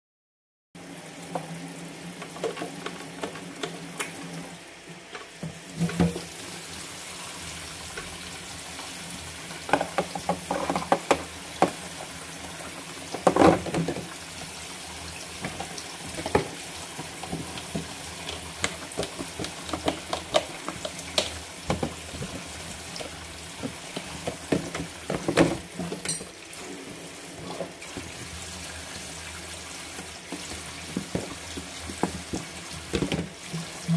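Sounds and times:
tap water running into sink: 0.8 - 4.6, 5.4 - 33.9
plastic containers knocking on sink: 9.7 - 11.9, 13.1 - 14.1, 15.4 - 26.0, 30.3 - 33.7.

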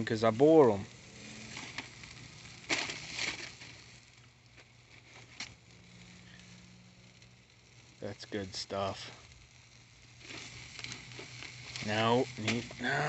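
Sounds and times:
steak sizzling on a grill: 0.0 - 13.0.

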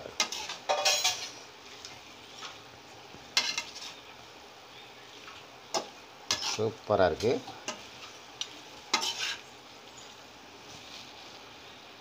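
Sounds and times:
metal spoon scraping a pan: 0.0 - 1.5, 3.4 - 4.1, 5.7 - 9.5.

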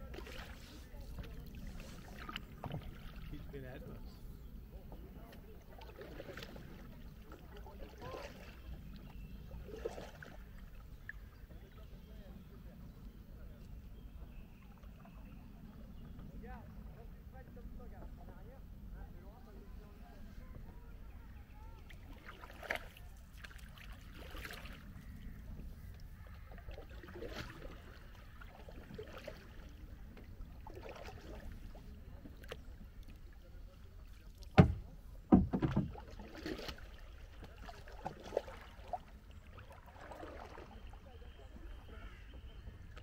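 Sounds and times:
paddle splashing in water: 0.0 - 3.8, 4.7 - 12.0, 20.3 - 43.0
loud knocks: 34.6 - 35.9.

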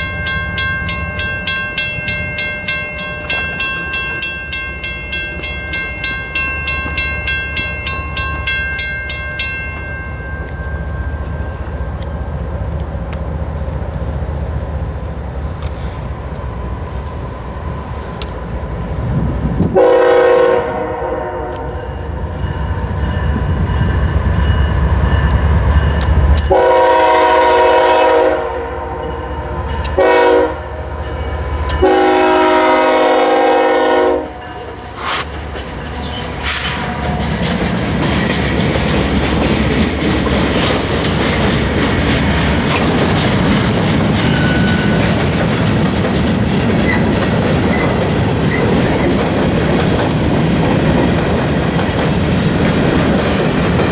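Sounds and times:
locomotive air horn blasts: 19.7 - 21.8, 26.5 - 29.1, 30.0 - 30.8, 31.8 - 34.4
train wheels clacking on rails: 31.0 - 53.9.

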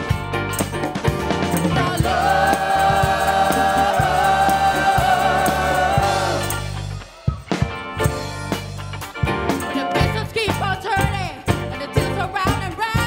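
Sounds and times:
drums and guitars: 0.0 - 13.0
singers singing together: 1.7 - 6.8.

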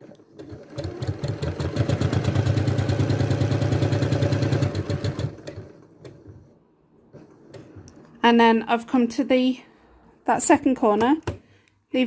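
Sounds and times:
sewing machine stitching: 0.0 - 6.5.

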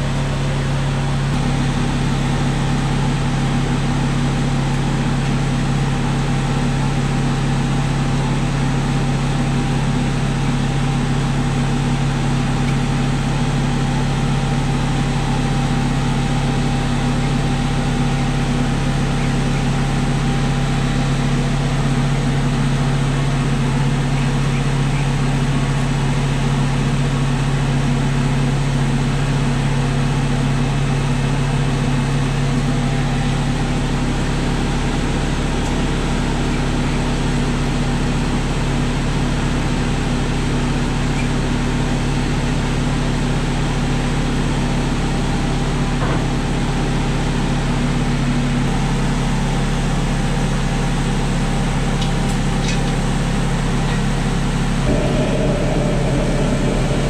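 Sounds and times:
kitchen fan drone: 0.0 - 57.0
higher hum tone: 54.8 - 57.0.

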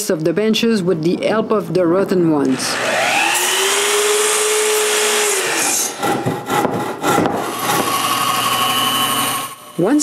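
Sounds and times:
saw cutting wooden board: 2.4 - 10.0
scraping and knocking: 6.0 - 8.7.

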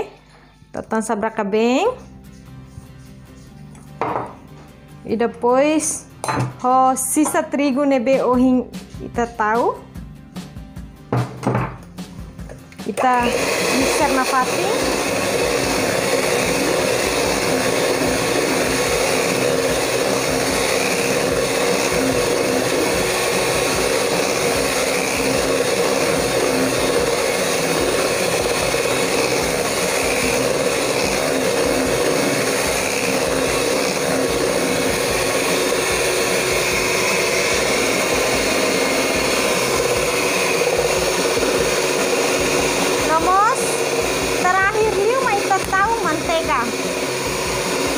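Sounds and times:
electric hand mixer running: 12.4 - 47.9.

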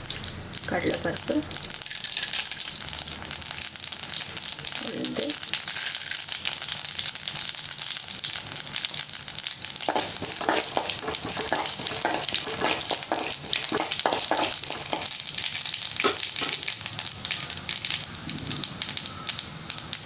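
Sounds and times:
seeds sizzling in hot oil: 0.0 - 20.0
spoon scraping a metal pan: 9.9 - 15.2.

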